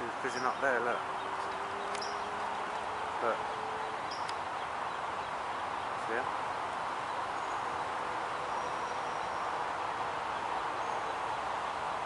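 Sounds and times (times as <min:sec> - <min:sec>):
outdoor background hiss: 0:00.0 - 0:12.0
faint high bird calls: 0:00.3 - 0:06.1.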